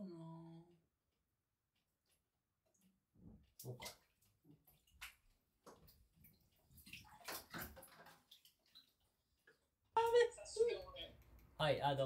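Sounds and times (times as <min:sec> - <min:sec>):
water sloshing in bathtub: 0:01.7 - 0:10.3
small drips: 0:01.8 - 0:10.2.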